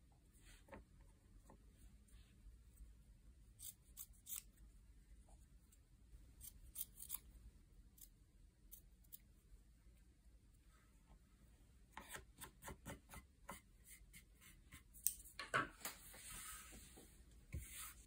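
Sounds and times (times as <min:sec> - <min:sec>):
scissors snipping fabric: 0:03.5 - 0:04.6, 0:06.4 - 0:07.3.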